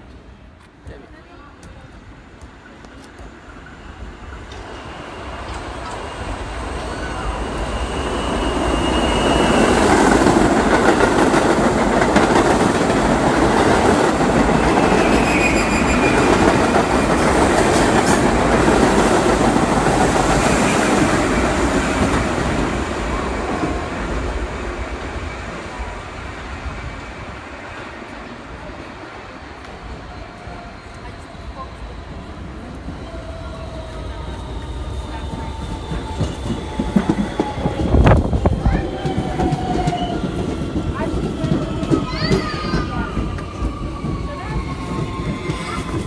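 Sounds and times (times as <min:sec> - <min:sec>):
subway train wheels rumbling: 0:00.0 - 0:46.0
high wheel squeals: 0:04.7 - 0:10.1, 0:14.6 - 0:16.6.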